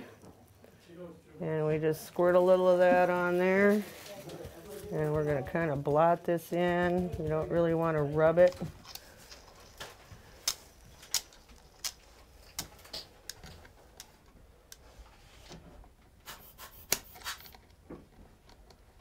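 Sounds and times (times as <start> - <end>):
pliers clicking on wire: 10.4 - 14.1.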